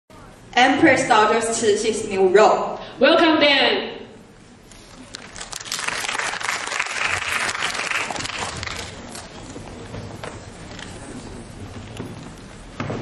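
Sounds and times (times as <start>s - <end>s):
audience applauding: 5.1s - 9.1s.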